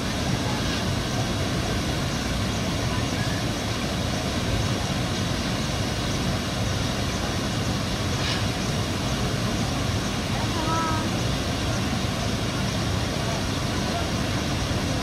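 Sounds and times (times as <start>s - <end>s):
waterfall roaring: 0.0s - 15.0s.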